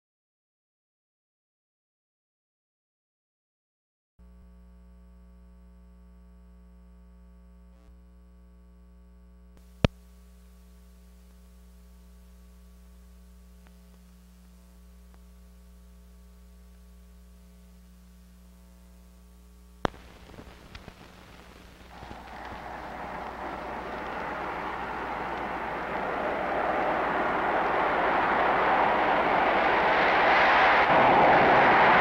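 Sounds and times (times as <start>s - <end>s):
electrical hum: 4.2s - 32.0s
faint hiss: 9.6s - 32.0s
light crackle: 9.6s - 32.0s.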